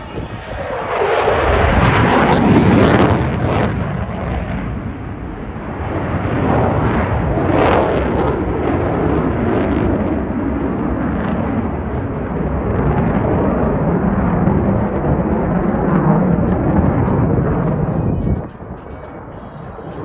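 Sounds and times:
jet engines roaring overhead: 0:00.0 - 0:20.0.

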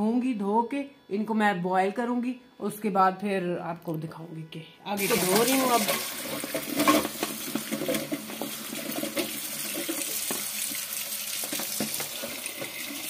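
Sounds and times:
tap water running into steel bowl: 0:05.0 - 0:13.0.

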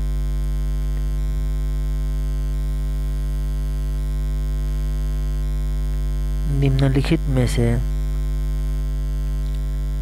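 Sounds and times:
electrical mains hum: 0:00.0 - 0:10.0
narration: 0:06.4 - 0:08.0.

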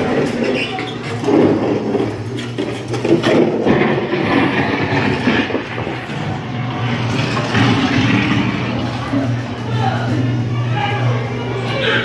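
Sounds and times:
ride car rumbling and rattling on track: 0:00.0 - 0:12.0.

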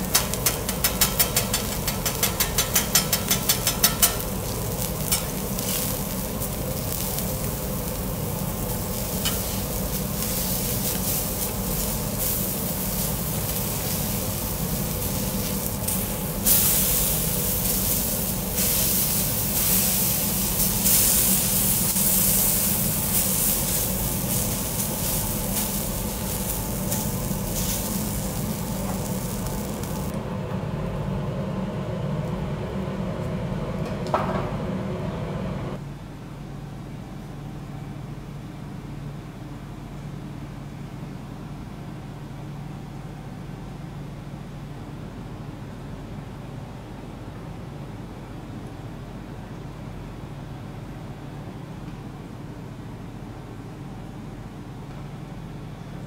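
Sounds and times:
seafood sizzling on a griddle: 0:00.0 - 0:30.1
steady low hum: 0:00.0 - 0:56.0
metal spatula tapping plate: 0:00.2 - 0:04.2.

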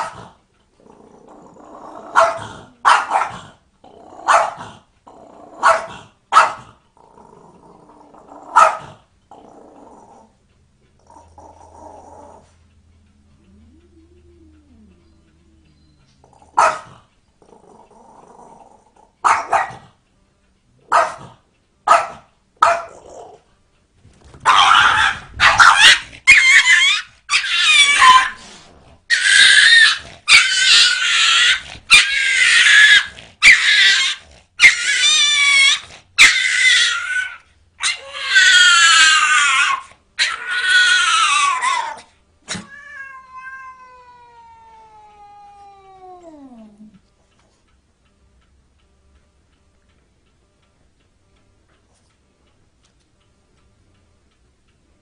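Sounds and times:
dog yelping: 0:02.1 - 0:03.4, 0:05.6 - 0:06.6, 0:16.6 - 0:17.0, 0:19.2 - 0:19.8, 0:24.4 - 0:28.4, 0:29.1 - 0:43.7
small dog barking: 0:02.1 - 0:03.5, 0:04.2 - 0:04.8, 0:05.6 - 0:06.8, 0:08.5 - 0:09.0, 0:16.6 - 0:17.0, 0:19.2 - 0:19.9, 0:20.8 - 0:23.0, 0:24.4 - 0:28.4.

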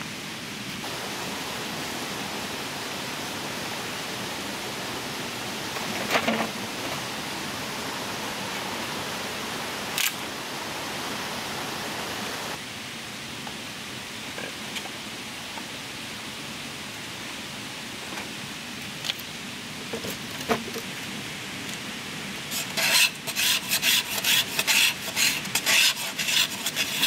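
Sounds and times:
steady rushing noise: 0:00.0 - 0:12.7.

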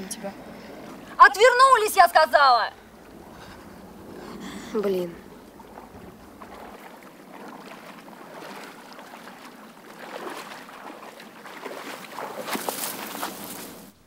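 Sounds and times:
water splashing and lapping: 0:00.0 - 0:14.0.

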